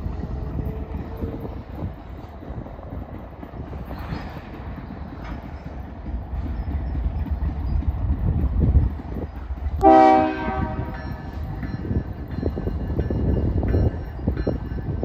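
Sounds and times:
train rumbling: 0.0s - 15.0s
locomotive horn blast: 9.8s - 11.0s.

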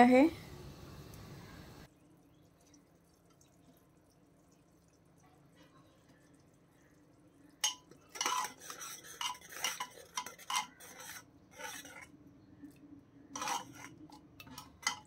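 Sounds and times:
spoon scraping and knocking pot: 7.6s - 12.2s, 13.3s - 15.0s.

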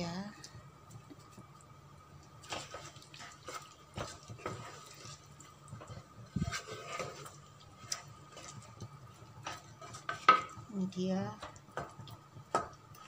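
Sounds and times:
wet squelches of stirring curry: 0.4s - 13.0s
spatula knocking against pan: 11.4s - 12.8s.

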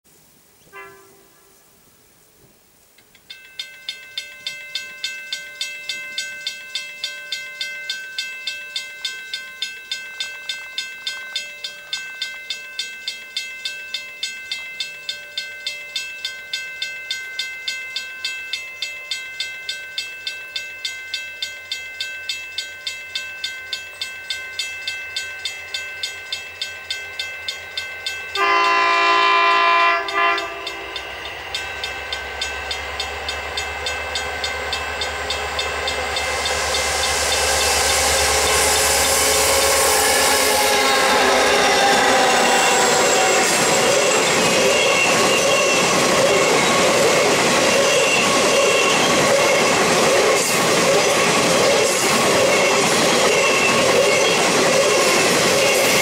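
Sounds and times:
locomotive chord horn: 0.7s - 1.6s, 28.4s - 31.0s, 37.2s - 43.8s
level crossing bell ringing: 3.2s - 56.0s.

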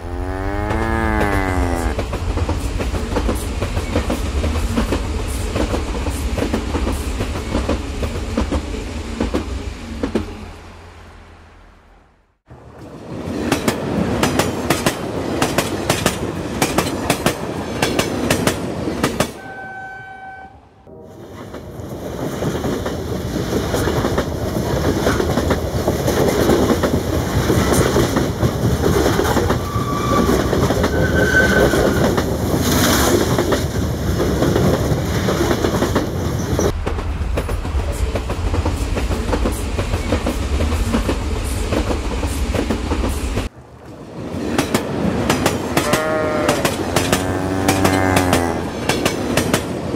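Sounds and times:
toy train horn: 19.4s - 20.7s.

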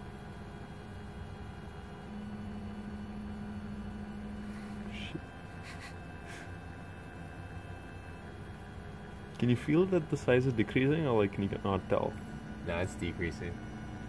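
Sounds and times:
background hum: 0.0s - 14.0s
printer motors humming: 0.0s - 14.0s.

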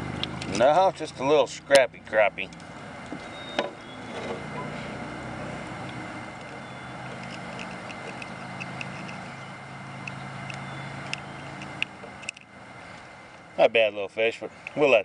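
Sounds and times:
engine humming: 0.0s - 15.0s
faint small clicks: 10.0s - 13.5s.

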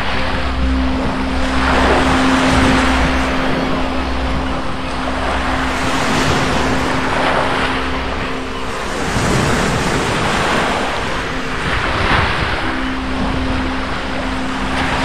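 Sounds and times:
sea waves breaking on beach: 0.0s - 15.0s
steady low hum: 0.0s - 15.0s.

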